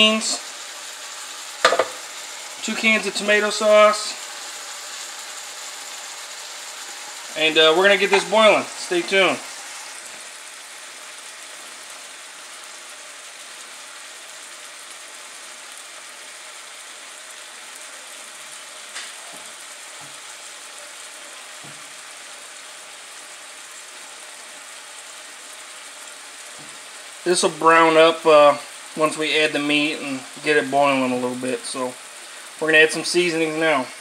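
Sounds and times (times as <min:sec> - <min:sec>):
meat sizzling in a pan: 0:00.0 - 0:34.0
faint stirring knocks: 0:01.6 - 0:02.0.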